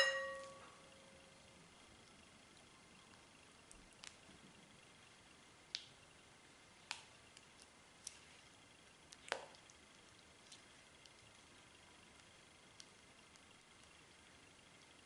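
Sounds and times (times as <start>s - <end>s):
thin high whine: 0.0s - 1.7s
faint steady hiss: 0.0s - 15.0s.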